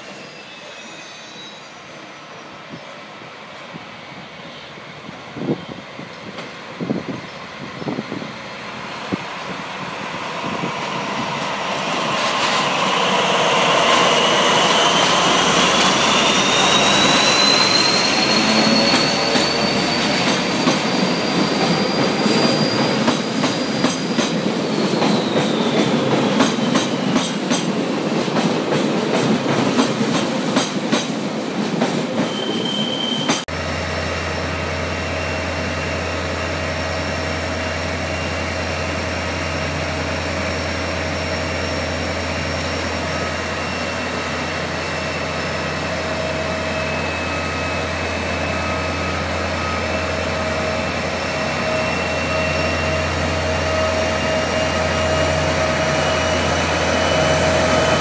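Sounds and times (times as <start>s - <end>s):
high wheel squeal: 0.0s - 2.6s, 9.3s - 27.3s, 32.2s - 33.5s, 34.2s - 58.0s.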